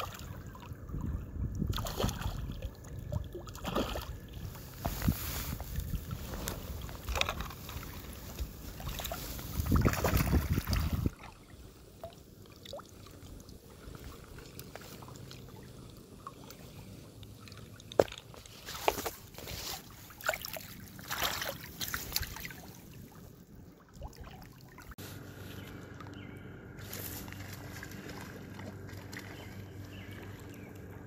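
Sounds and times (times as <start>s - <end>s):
creek water lapping: 0.0s - 31.0s
small splashes and knocks: 1.6s - 11.4s, 12.0s - 23.2s, 27.2s - 30.9s.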